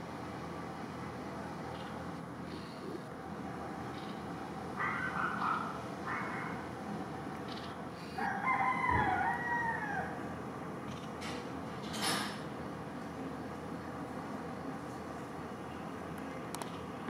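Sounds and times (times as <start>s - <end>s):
rooster crowing: 8.2s - 10.4s.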